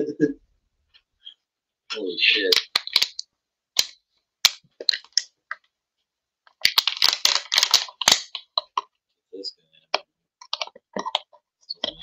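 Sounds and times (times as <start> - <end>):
plastic bottle crackling: 2.4 - 3.2, 3.8 - 5.7, 6.5 - 9.0, 9.9 - 12.0.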